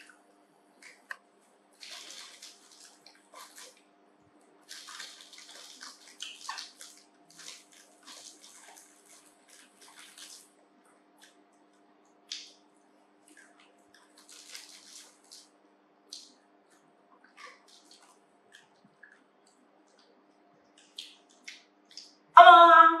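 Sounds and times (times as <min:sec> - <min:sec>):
faint steady hum: 0:00.0 - 0:23.0
plastic snack packet rustling: 0:01.8 - 0:03.8, 0:04.6 - 0:10.6, 0:14.0 - 0:15.6.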